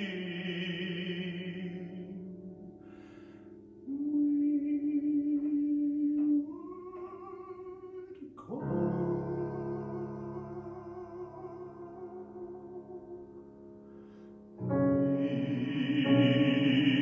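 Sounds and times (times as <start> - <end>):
baritone singing: 0.0 - 2.8, 3.8 - 13.6, 14.6 - 17.0
piano accompaniment: 0.0 - 17.0
quick breath: 2.8 - 3.6.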